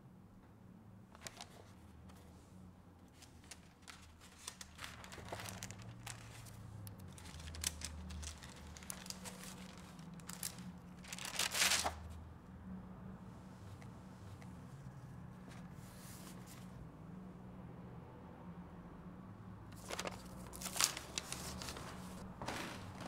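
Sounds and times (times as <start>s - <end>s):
small clicks of pages: 1.1s - 2.3s, 3.0s - 12.0s, 19.7s - 23.0s
paper pages rustling: 1.2s - 2.4s, 3.0s - 12.2s, 15.4s - 16.8s, 19.8s - 23.0s.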